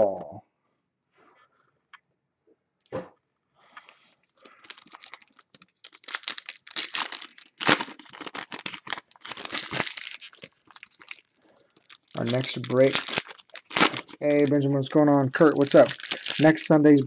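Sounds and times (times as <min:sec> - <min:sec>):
foil wrappers crackling: 0:04.4 - 0:16.8.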